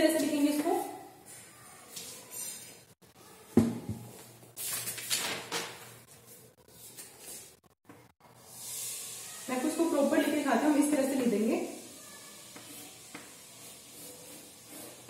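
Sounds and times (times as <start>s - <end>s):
paper rustling: 4.6s - 7.6s.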